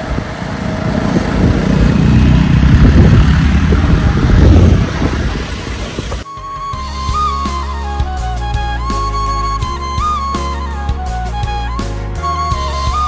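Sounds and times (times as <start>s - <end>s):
vehicle engine and road rumble: 0.0s - 6.3s
background music: 6.2s - 13.0s.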